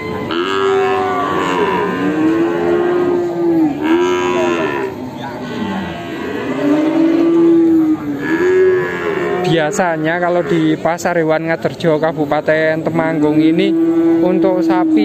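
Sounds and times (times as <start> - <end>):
cattle mooing: 0.0 - 10.8, 13.4 - 15.0.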